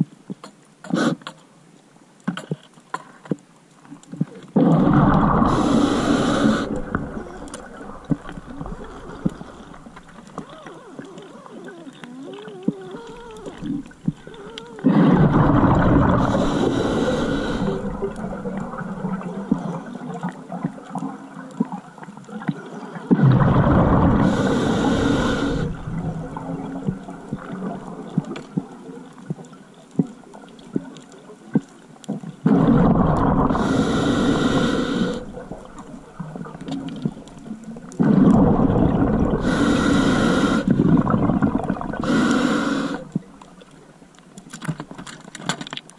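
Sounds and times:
exhaust bubbles rushing: 4.6s - 10.0s, 14.9s - 19.6s, 23.2s - 28.3s, 32.5s - 39.5s, 40.7s - 42.1s
scuba regulator breathing: 5.0s - 10.8s, 13.0s - 20.1s, 24.1s - 26.2s, 32.5s - 35.9s, 38.0s - 41.2s, 41.8s - 43.2s.

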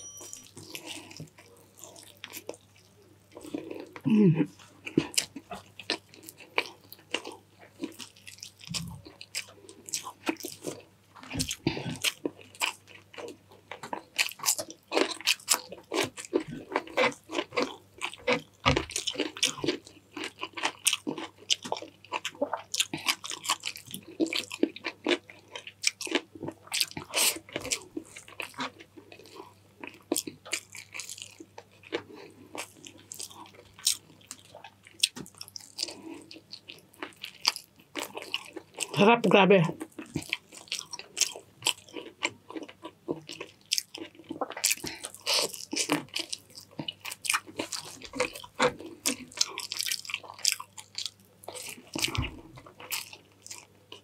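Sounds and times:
person chewing food: 0.0s - 39.0s, 39.8s - 54.0s.

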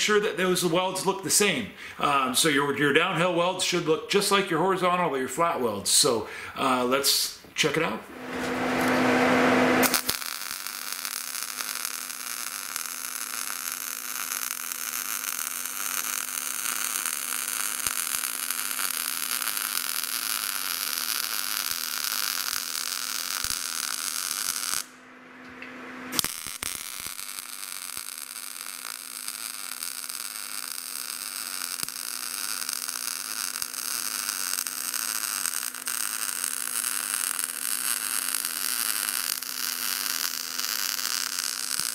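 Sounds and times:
welder arc crackling buzz: 8.1s - 25.0s, 25.9s - 41.9s.

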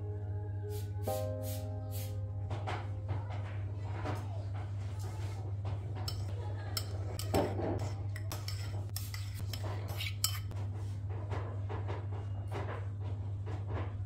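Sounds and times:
metal spoon clinking on bowl: 6.1s - 10.5s.

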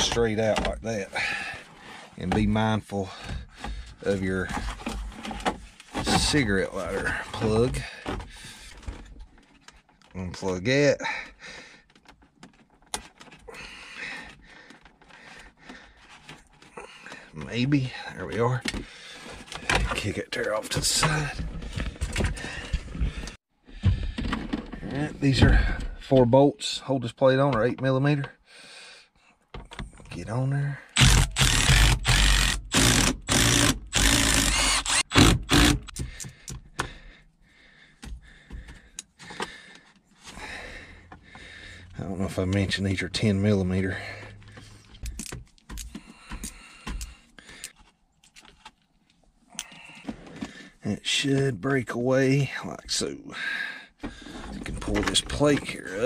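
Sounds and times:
cordless power tool running: 31.0s - 35.9s
hand tools clicking and tapping: 44.5s - 48.5s.

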